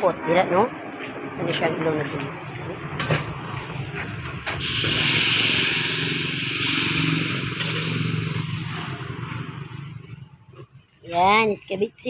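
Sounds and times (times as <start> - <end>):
sauce sizzling in hot oil: 4.6 - 9.8.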